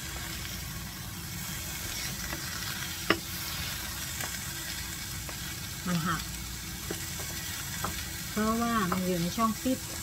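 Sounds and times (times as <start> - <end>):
sausages sizzling in a frying pan: 0.0 - 10.0
spatula scraping pan: 1.4 - 5.6
spatula knocking on pan: 3.0 - 3.3, 6.8 - 8.1, 8.7 - 9.2.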